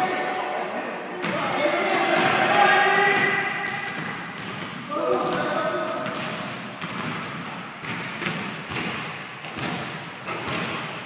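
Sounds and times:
basketball and sneakers thudding: 2.2s - 11.0s.

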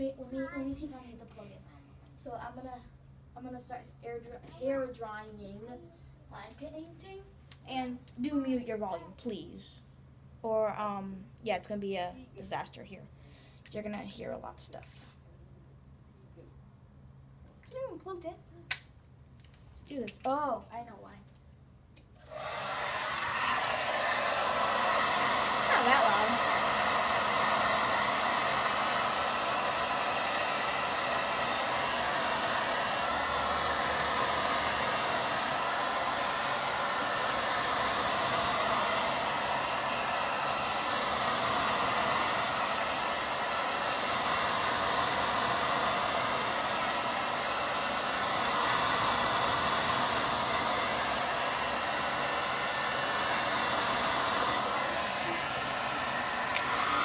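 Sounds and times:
hair dryer blowing: 22.2s - 57.0s.

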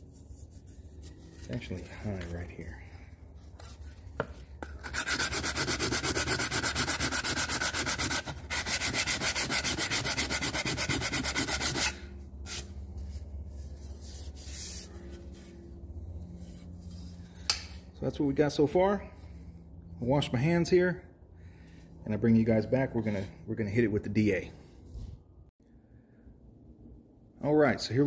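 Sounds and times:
sandpaper rubbing on aluminum: 4.8s - 12.7s.

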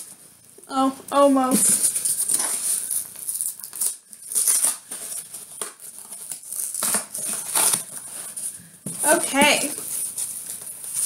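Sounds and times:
cardboard box being torn open: 2.2s - 8.1s.

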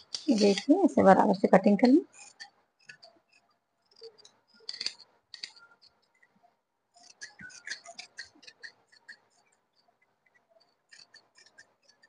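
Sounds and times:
scissors snipping fabric: 7.0s - 9.4s.

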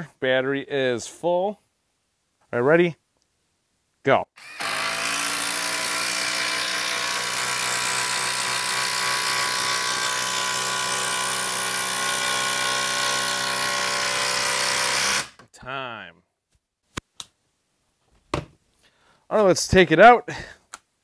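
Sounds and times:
impact driver driving screw into wood: 4.4s - 15.4s.

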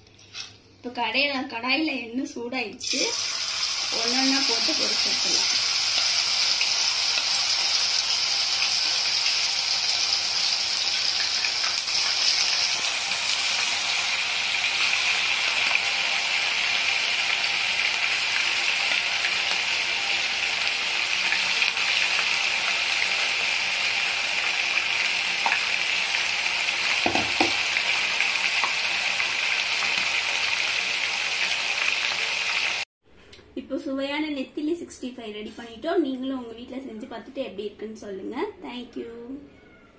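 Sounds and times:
deep-frying sizzle in oil: 2.8s - 32.9s.

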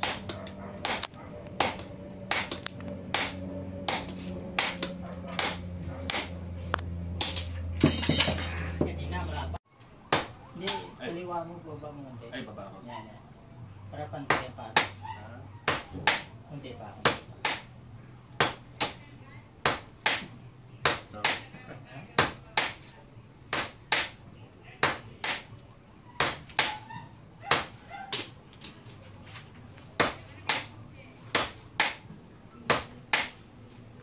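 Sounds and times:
hammers striking metal on anvil: 0.0s - 6.4s, 7.2s - 8.6s, 14.3s - 15.0s, 15.7s - 16.3s, 17.0s - 17.7s, 18.4s - 19.0s, 19.6s - 21.5s, 22.2s - 22.9s, 23.5s - 24.2s, 24.8s - 25.5s, 26.2s - 26.8s, 27.5s - 28.3s, 30.0s - 30.7s, 31.3s - 33.4s.

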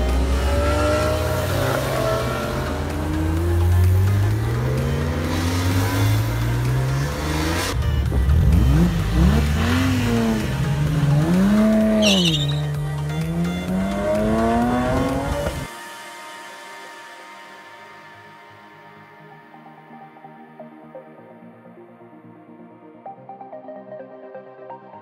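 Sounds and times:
car engines accelerating hard: 0.0s - 15.7s
tyre squeal: 11.9s - 12.8s.

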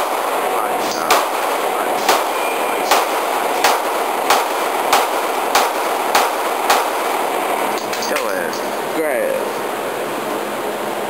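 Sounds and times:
steady background hiss: 0.0s - 11.0s
pistol shots indoors: 1.1s - 1.5s, 2.1s - 7.4s.

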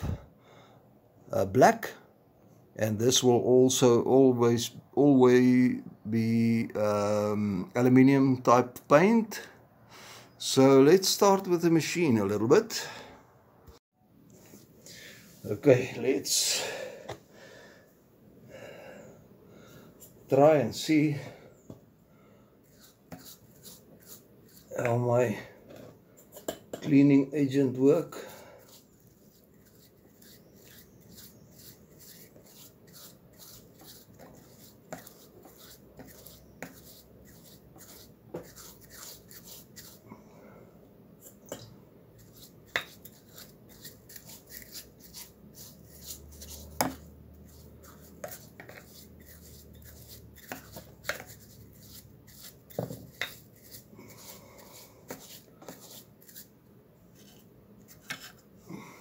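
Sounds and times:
brush scrubbing metal: 22.7s - 24.8s, 27.5s - 40.0s, 42.2s - 56.5s.

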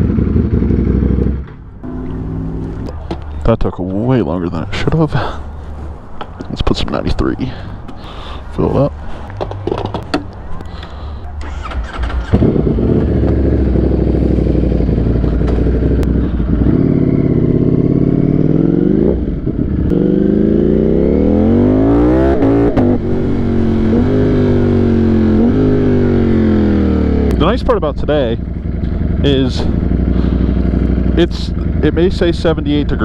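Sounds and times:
motorcycle engine revving and accelerating: 0.0s - 3.1s, 11.4s - 33.0s.

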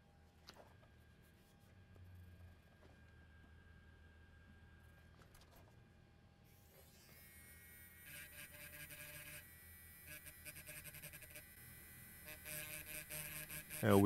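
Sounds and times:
small motor whirring: 6.5s - 14.0s.

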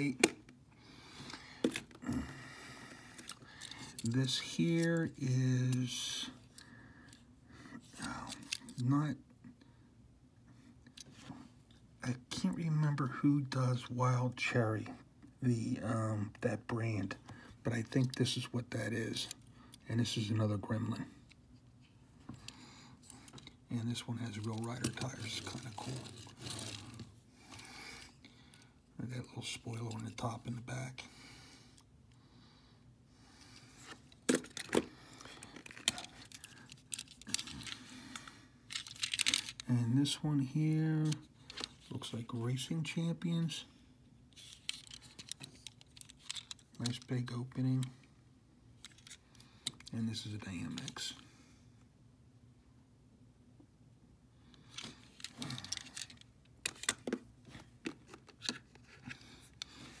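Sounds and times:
model cars clicking in plastic case: 38.7s - 39.6s, 44.4s - 47.1s.

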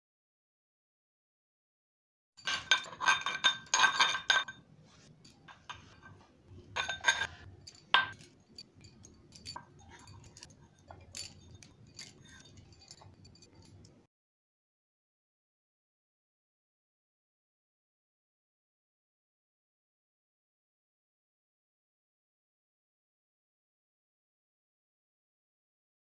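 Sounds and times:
spoon clinking in glass bowl: 2.4s - 4.6s, 6.8s - 14.0s.

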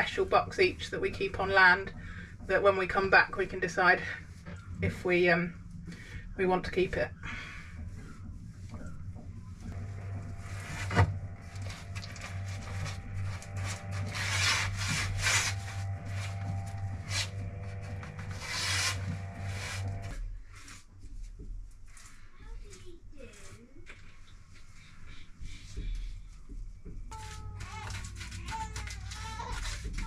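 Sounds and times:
low hum with higher tones: 0.0s - 20.4s
paintbrush scrubbing panels: 0.0s - 30.0s.

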